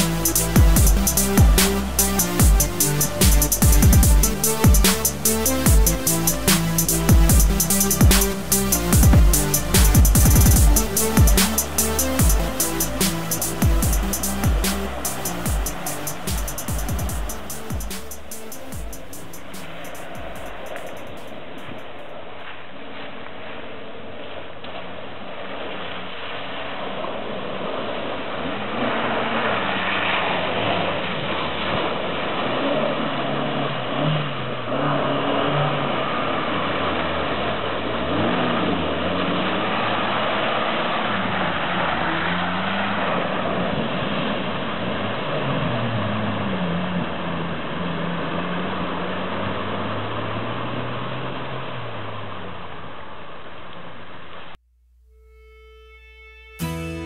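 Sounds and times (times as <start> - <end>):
off-road engine revving: 0.0 - 21.9, 28.5 - 52.7
water splashing around wheels: 19.0 - 54.0.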